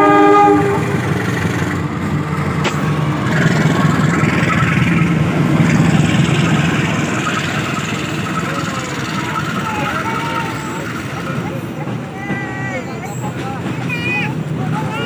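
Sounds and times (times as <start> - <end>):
locomotive horn blast: 0.0 - 1.1
diesel locomotive engine rumble: 0.0 - 15.0.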